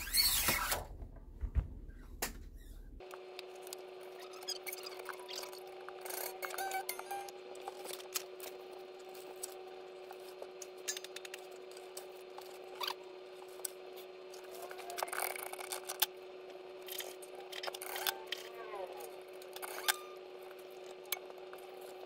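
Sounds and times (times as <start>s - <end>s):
upward-sliding squeak: 0.0s - 0.9s, 4.1s - 7.9s, 19.6s - 20.2s
faint hum: 0.0s - 22.0s.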